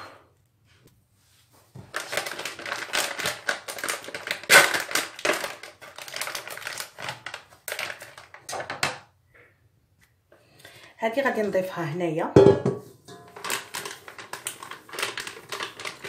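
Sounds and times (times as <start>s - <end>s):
foil sachet crinkling: 1.8s - 8.5s, 13.3s - 16.0s.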